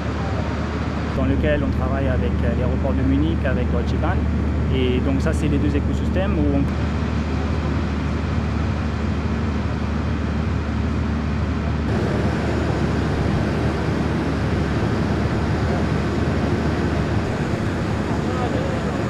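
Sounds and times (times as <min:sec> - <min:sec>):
low mechanical hum and rumble: 0:00.0 - 0:19.0
noisy hiss: 0:11.9 - 0:19.0.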